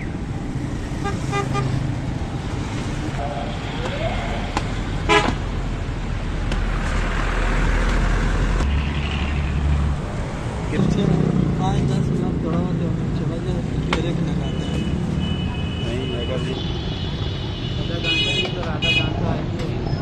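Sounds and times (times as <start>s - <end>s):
street traffic: 0.0s - 20.0s
vehicle horn toot: 5.1s - 5.4s.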